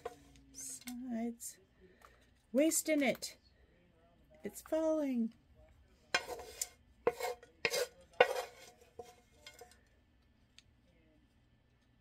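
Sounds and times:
wooden spatula scraping pan: 0:00.0 - 0:00.8, 0:06.1 - 0:09.8.

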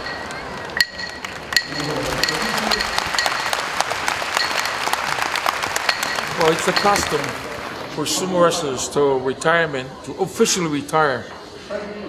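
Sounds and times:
audience applauding: 0:00.0 - 0:08.1
sharp ringing clack: 0:05.8 - 0:07.3.

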